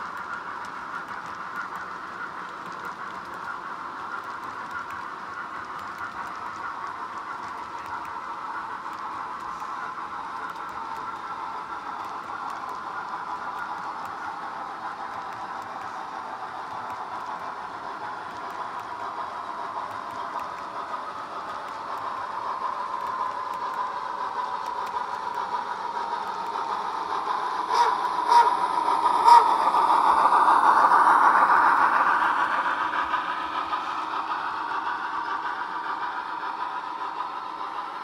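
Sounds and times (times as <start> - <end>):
model train rolling whine: 0.0 - 38.0
sharp clicks: 19.8 - 27.1.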